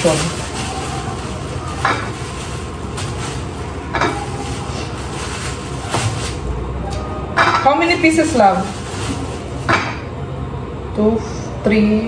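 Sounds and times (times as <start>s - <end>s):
plastic bag crinkling: 0.0s - 6.5s, 7.9s - 10.1s.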